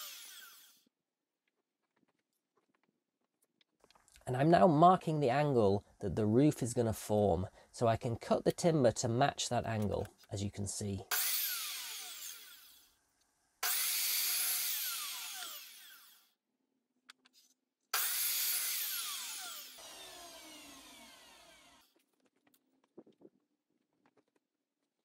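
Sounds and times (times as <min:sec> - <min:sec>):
electric mitre saw cutting timber: 0:00.0 - 0:00.8, 0:11.1 - 0:12.9, 0:13.6 - 0:16.3, 0:17.9 - 0:21.9.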